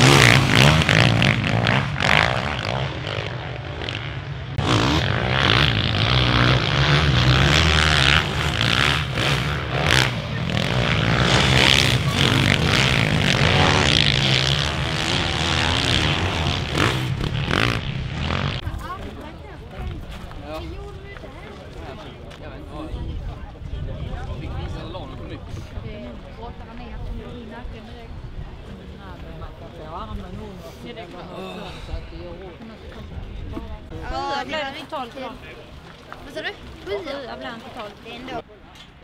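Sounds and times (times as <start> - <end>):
dirt bike engines revving: 0.0 - 38.4.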